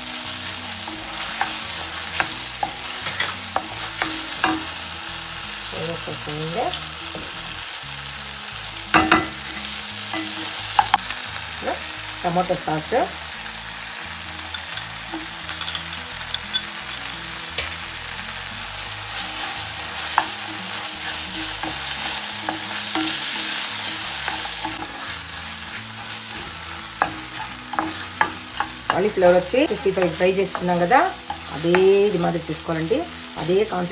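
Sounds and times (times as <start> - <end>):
vegetables sizzling in oil: 0.0 - 33.9
spatula scraping a pan: 0.4 - 4.8, 19.1 - 32.0.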